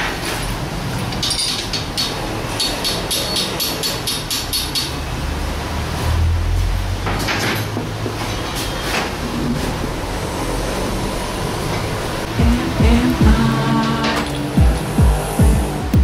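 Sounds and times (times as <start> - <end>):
metal gears clinking: 1.0 - 5.0
steady low hum: 12.2 - 16.0.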